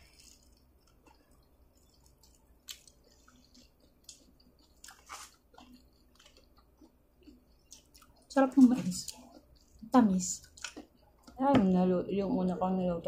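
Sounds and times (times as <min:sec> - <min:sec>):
chewing corn on the cob: 0:00.0 - 0:11.4.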